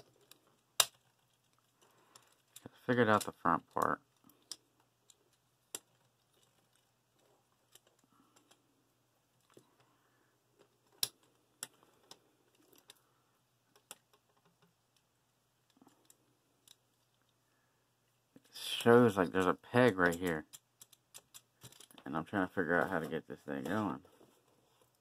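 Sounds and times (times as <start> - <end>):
plastic parts clicking and snapping: 0.0 - 8.6, 10.6 - 13.0, 13.7 - 17.4, 18.8 - 22.1.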